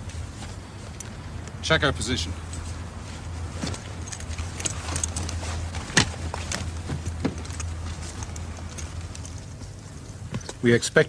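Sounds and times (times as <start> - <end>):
steady low hum: 0.0 - 11.0
gear clicks and knocks: 3.6 - 10.6.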